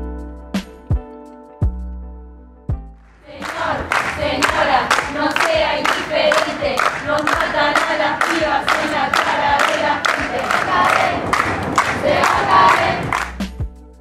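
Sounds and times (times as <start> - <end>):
music: 0.0 - 14.0
rhythmic hand clapping: 3.1 - 13.8
women chanting in unison: 3.3 - 13.2.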